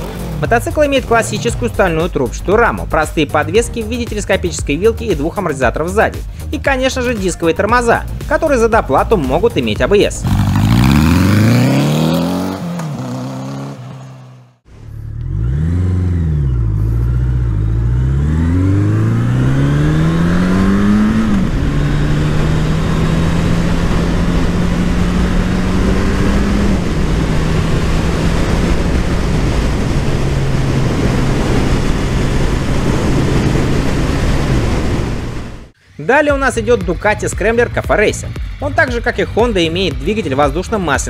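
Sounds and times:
motorcycle engine revving: 0.0s - 3.0s, 9.3s - 35.9s
wind rushing: 18.3s - 35.8s.

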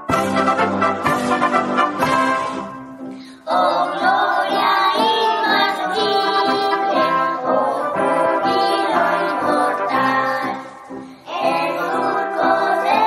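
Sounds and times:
brass band playing: 0.0s - 3.1s, 6.6s - 10.2s.

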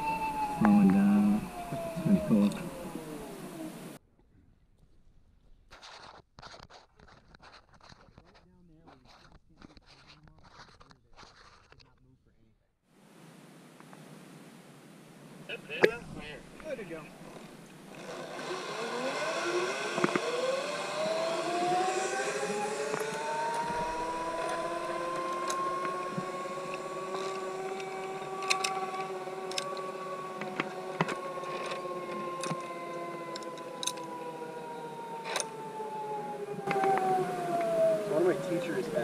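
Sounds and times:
zipline pulleys whining on cable: 0.0s - 4.0s, 16.6s - 39.0s.

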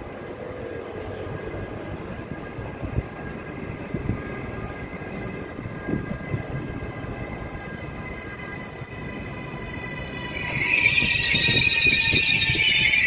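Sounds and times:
train high-pitched whine: 0.0s - 13.0s
train low rumble: 0.0s - 13.0s
loud train squeal: 3.9s - 13.0s.

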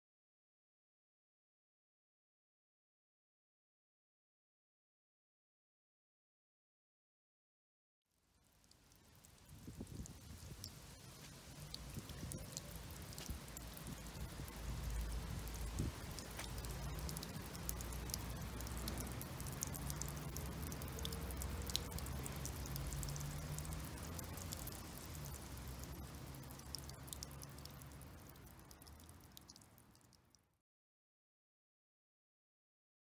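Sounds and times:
fountain mist pattering: 8.4s - 30.2s.

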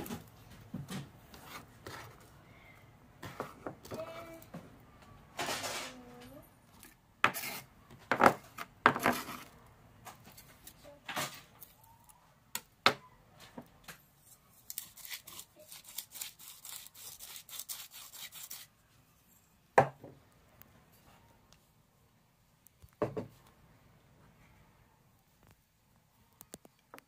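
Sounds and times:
knocks on wooden cutting board: 23.0s - 23.3s.

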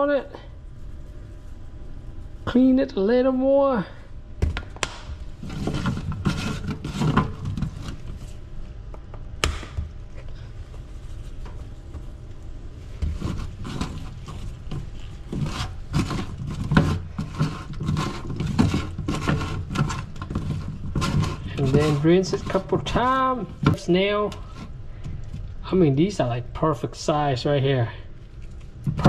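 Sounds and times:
hands rubbing meat with salt: 0.6s - 3.0s.

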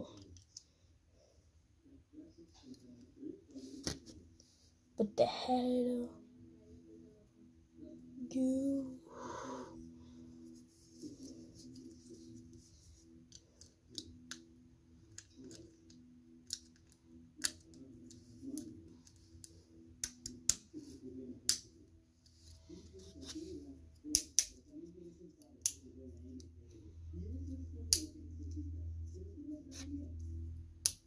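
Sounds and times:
faint low hum: 0.0s - 31.0s
plastic parts clicking and snapping: 15.1s - 20.6s.

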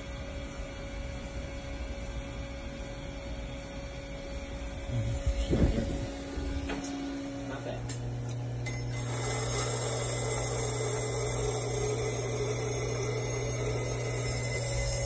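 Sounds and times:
bench grinder motor humming: 8.0s - 15.0s
blade grinding hiss: 9.0s - 15.0s.

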